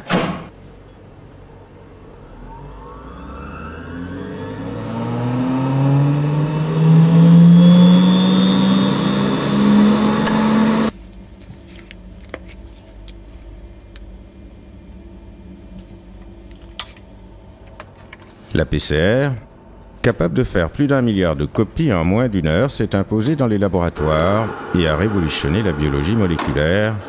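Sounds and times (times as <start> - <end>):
centrifuge whine rising in pitch: 1.6 - 10.9, 23.8 - 27.0
low background hum: 10.9 - 27.0.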